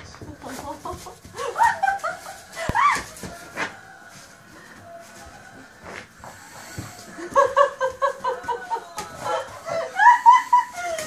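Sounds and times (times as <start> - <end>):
person laughing: 7.0 - 11.0.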